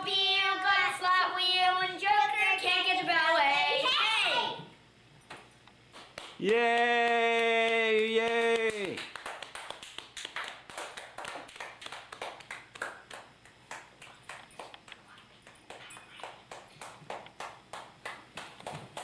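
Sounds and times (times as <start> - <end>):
hands clapping: 5.3 - 19.0.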